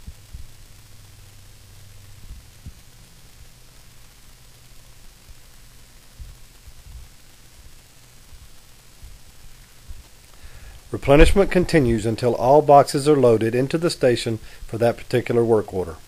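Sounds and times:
electrical hum and hiss: 0:00.0 - 0:16.0
faint low thumps: 0:09.9 - 0:12.8.

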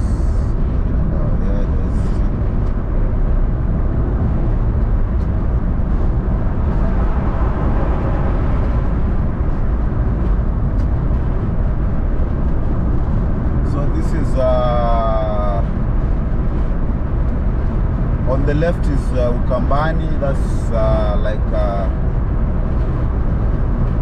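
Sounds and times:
engine and tyre rumble: 0:00.0 - 0:24.0
wind noise: 0:00.0 - 0:24.0
truck passing: 0:01.9 - 0:13.6.

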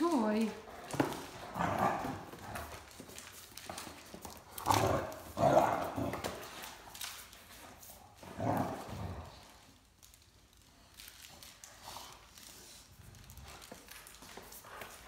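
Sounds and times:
dog claws clattering on tiles: 0:00.0 - 0:11.9
dogs playing: 0:00.0 - 0:15.0.

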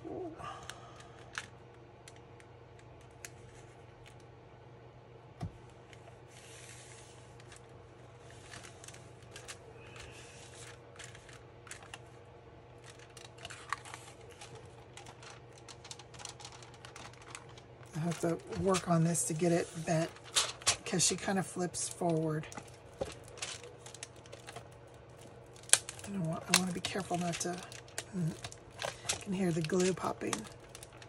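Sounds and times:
paper and plastic crinkling: 0:06.3 - 0:31.0
paper rustling: 0:08.2 - 0:12.1, 0:12.8 - 0:31.0.

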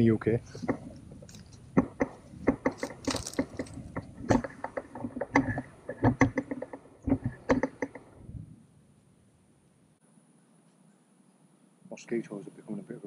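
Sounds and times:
camera handling noise: 0:00.6 - 0:04.6.

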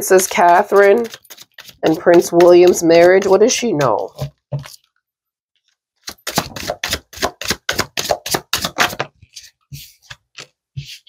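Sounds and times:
cards being shuffled: 0:00.1 - 0:03.5, 0:05.6 - 0:11.0.

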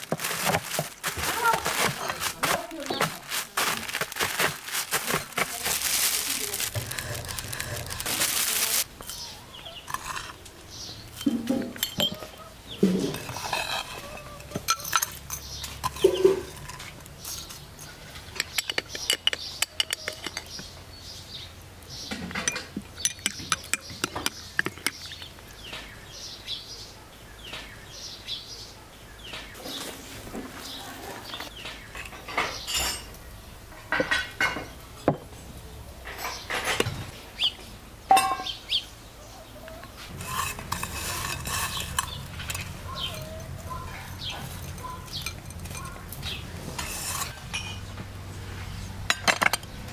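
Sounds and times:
metal spoon clinking on glass: 0:11.2 - 0:12.3.

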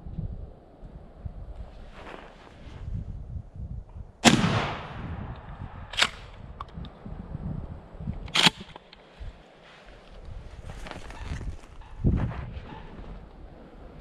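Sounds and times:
shotgun shot with echo: 0:04.2 - 0:05.3.

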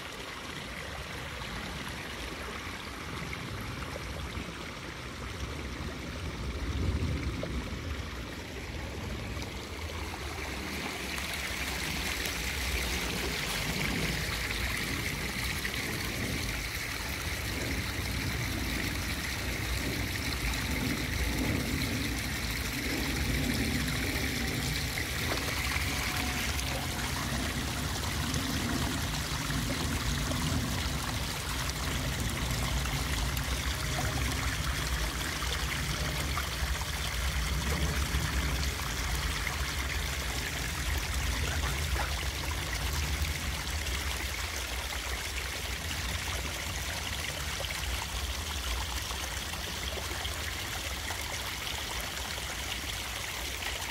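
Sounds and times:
running water: 0:00.0 - 0:53.9
low rumble: 0:05.6 - 0:43.7.

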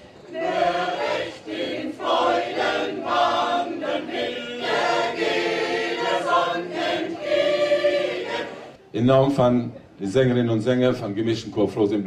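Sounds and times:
mixed choir singing: 0:00.0 - 0:08.8.

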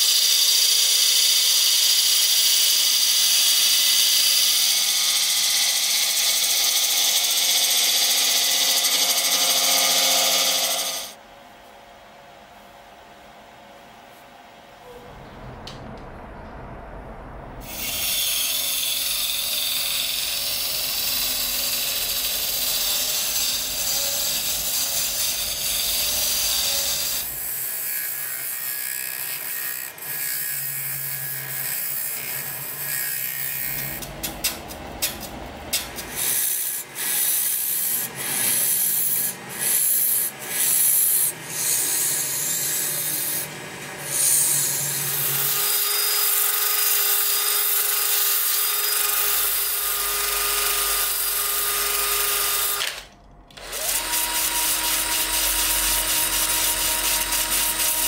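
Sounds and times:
tool scraping wood on lathe: 0:03.5 - 0:11.2.

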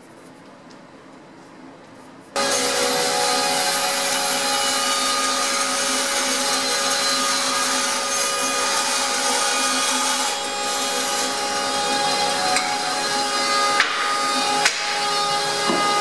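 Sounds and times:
band saw cutting wood: 0:02.4 - 0:16.0.

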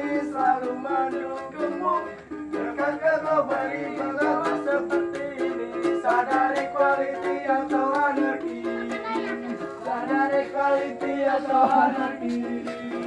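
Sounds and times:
person singing: 0:00.0 - 0:13.0
ukulele strumming: 0:00.0 - 0:13.0.

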